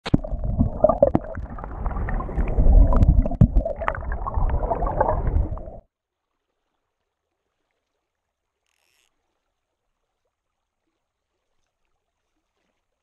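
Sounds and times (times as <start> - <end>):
underwater clicks and knocks: 0.0 - 1.7, 2.8 - 5.6
underwater stream gurgling: 0.0 - 5.9.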